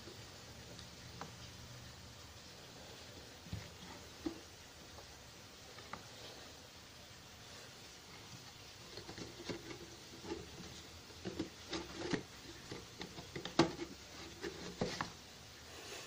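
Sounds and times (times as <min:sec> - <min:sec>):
cardboard box scraping and rubbing: 0:09.3 - 0:15.2.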